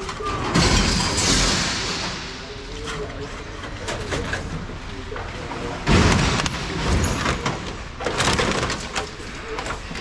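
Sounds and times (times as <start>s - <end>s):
metal bangs and rattles: 0.0s - 2.8s, 5.6s - 9.9s
loud metal crash: 0.3s - 2.6s, 5.8s - 7.7s.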